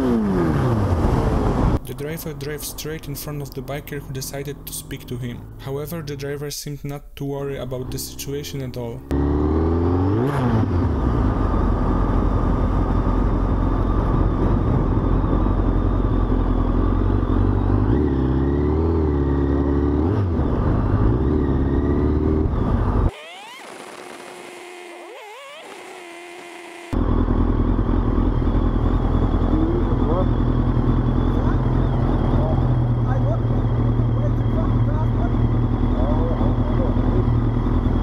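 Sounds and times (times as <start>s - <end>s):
motorcycle engine revving: 0.0s - 5.6s, 7.8s - 38.0s
wind noise on microphone: 12.0s - 15.8s.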